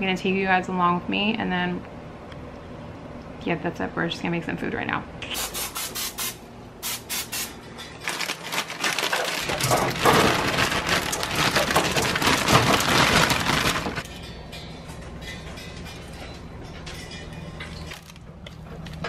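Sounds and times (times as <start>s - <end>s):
aerosol cooking spray bursts: 5.3s - 7.5s
broccoli pouring onto foil: 8.0s - 14.1s.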